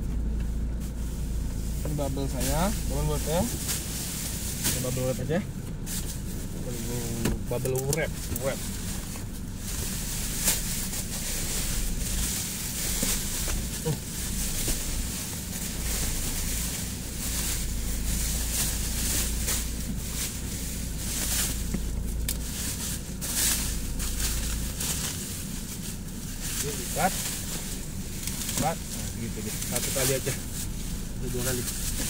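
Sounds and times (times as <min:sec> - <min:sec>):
steady low hum: 0:00.0 - 0:32.0
bubble wrap crinkling: 0:01.6 - 0:32.0.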